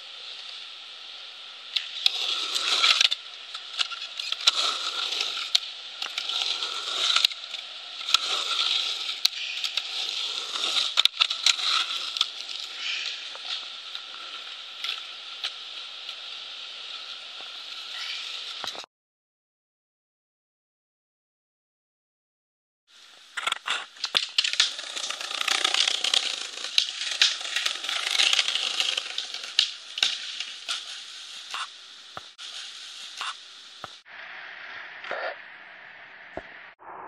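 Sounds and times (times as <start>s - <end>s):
skateboard wheels rolling on concrete: 0.0s - 18.9s, 22.9s - 35.4s
skateboard clacking on concrete: 23.4s - 32.4s.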